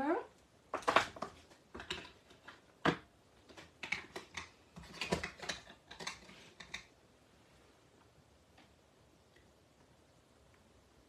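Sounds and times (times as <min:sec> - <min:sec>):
plastic cases clicking and tapping: 0:00.7 - 0:06.9.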